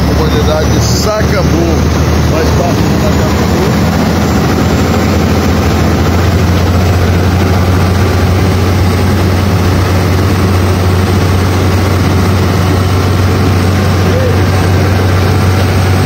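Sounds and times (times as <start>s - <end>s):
speedboat engine humming: 0.0s - 16.0s.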